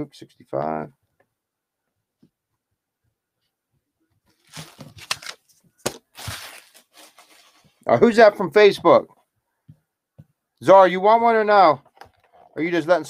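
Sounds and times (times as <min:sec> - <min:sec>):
card boxes rustling and clicking: 0:04.3 - 0:07.6.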